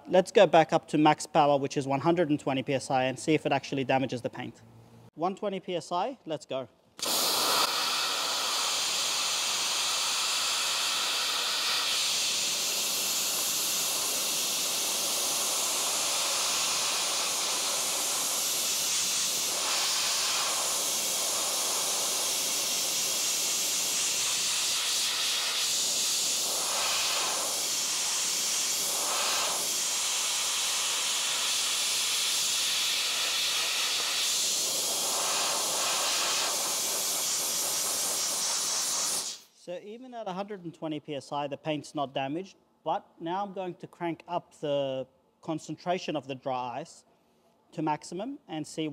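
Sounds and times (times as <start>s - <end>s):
dry ice blaster hissing: 7.0s - 39.5s.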